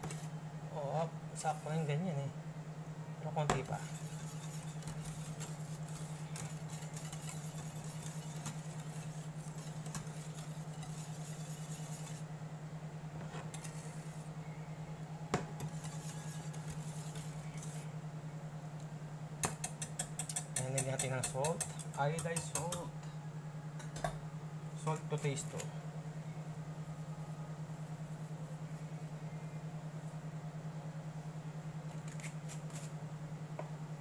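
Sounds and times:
pulsing cooktop hum: 0:00.0 - 0:34.0
whisk scraping in saucepan: 0:01.4 - 0:02.0, 0:03.5 - 0:12.3, 0:13.2 - 0:14.3, 0:15.6 - 0:17.9, 0:19.5 - 0:22.9
whisk clinking on pan: 0:03.8 - 0:12.2.

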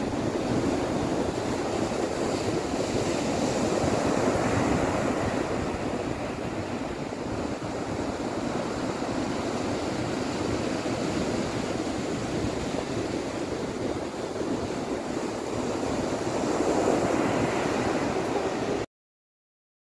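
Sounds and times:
ocean surf breaking: 0:00.0 - 0:18.9.

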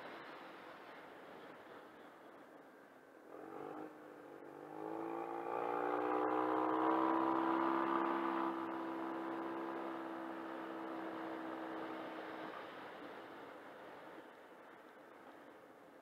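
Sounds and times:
scooter engine accelerating: 0:03.3 - 0:12.7.

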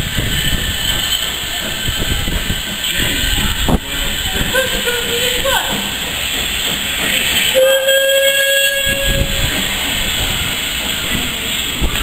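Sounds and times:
steam locomotive hissing: 0:00.0 - 0:12.0
train whistle blast: 0:07.5 - 0:09.5.

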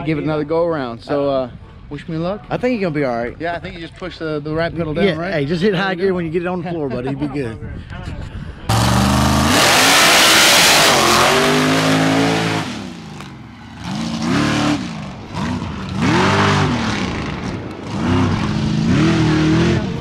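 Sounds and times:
truck engine revving: 0:08.7 - 0:20.0.

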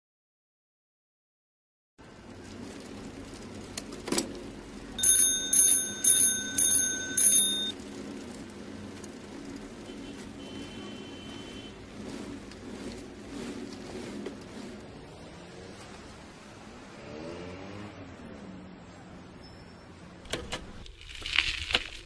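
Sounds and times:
bell-like rings: 0:05.0 - 0:07.7.

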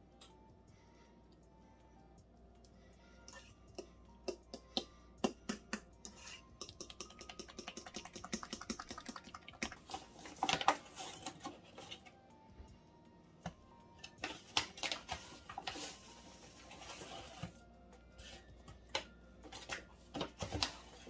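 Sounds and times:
utensil stirring batter in metal bowl: 0:06.0 - 0:11.6.

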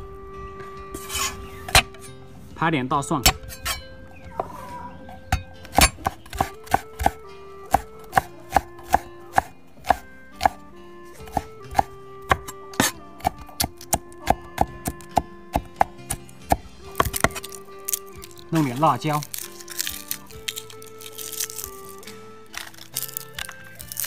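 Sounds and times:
cleaver chopping on wooden board: 0:05.3 - 0:10.6, 0:11.2 - 0:18.4.

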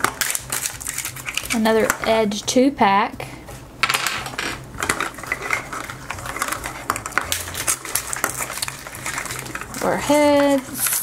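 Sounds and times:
wrapper rustling and tearing: 0:00.0 - 0:01.8, 0:04.8 - 0:11.0.

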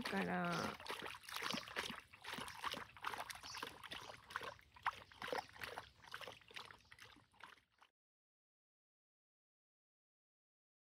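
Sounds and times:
dog lapping water: 0:00.0 - 0:07.9.

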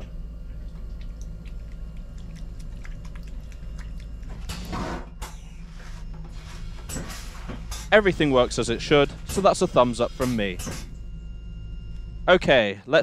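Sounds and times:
low hum: 0:00.0 - 0:13.0
small clicks and drips: 0:00.5 - 0:05.3.

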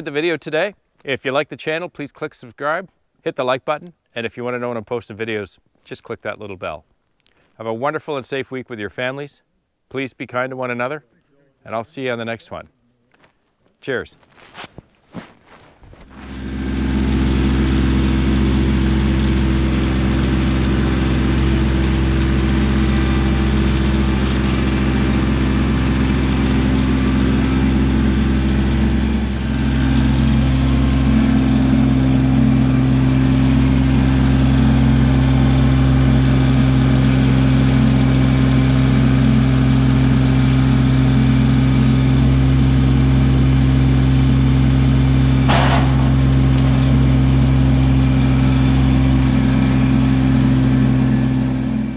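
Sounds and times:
tractor diesel engine running: 0:15.2 - 0:51.9.

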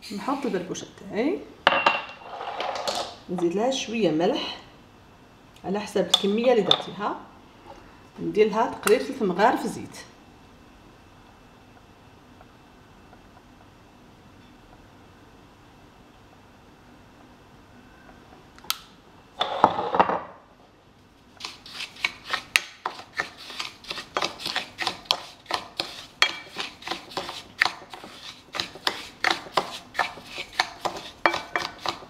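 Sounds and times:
spoon stirring grains in bowl: 0:21.4 - 0:32.0.

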